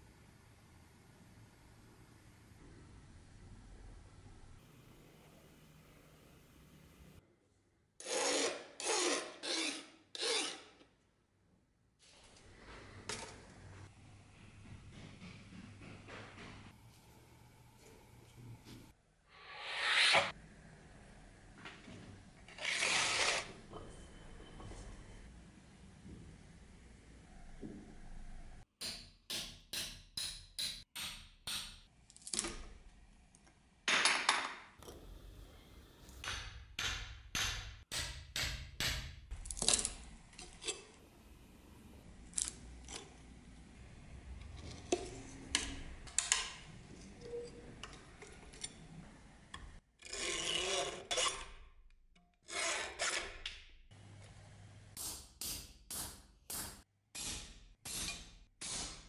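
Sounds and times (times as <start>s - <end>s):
rasping scrape on knife: 8.0s - 10.8s, 19.4s - 20.3s, 50.0s - 51.5s, 52.5s - 53.4s.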